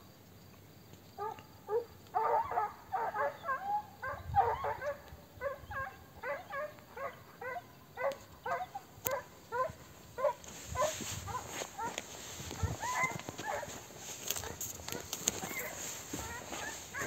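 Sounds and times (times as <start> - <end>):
hounds baying with yelping barks: 1.2 - 17.0.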